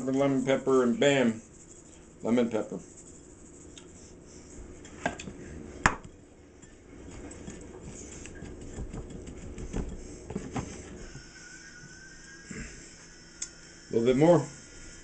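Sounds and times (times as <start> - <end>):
fingers stirring dry breading: 0.0 - 11.3.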